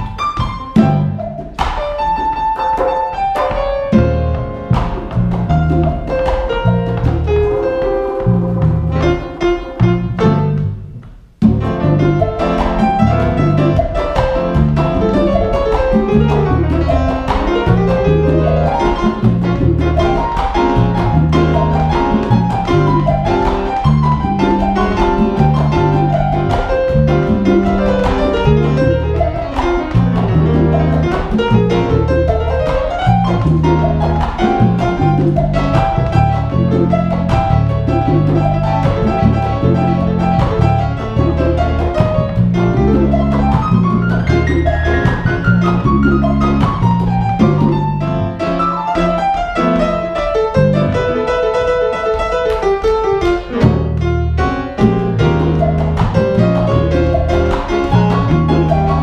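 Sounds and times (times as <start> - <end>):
plucked double bass: 0.0 - 51.2, 53.4 - 59.0
jazz piano: 0.0 - 59.0.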